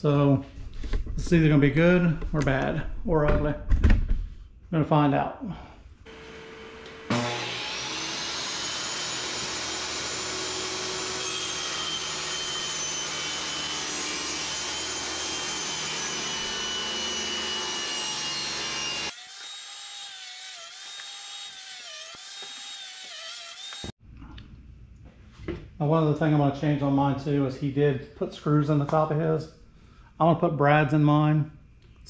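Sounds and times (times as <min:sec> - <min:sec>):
table saw motor whine: 0:06.1 - 0:23.9.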